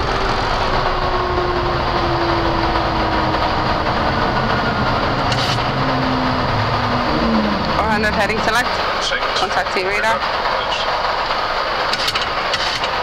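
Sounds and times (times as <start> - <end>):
cockpit airflow and engine rush: 0.0 - 13.0
faint falling tone: 0.4 - 8.9.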